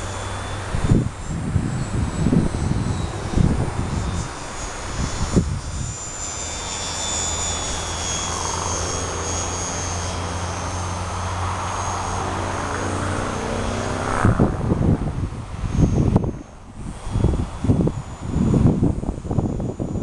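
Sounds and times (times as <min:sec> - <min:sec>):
model plane motor whining: 0:00.0 - 0:20.0
rumbling bursts on microphone: 0:10.2 - 0:20.0.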